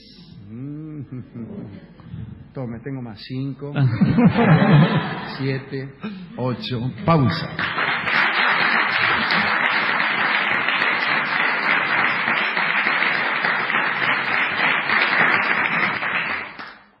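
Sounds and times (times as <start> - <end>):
audience clapping: 7.1 - 17.0.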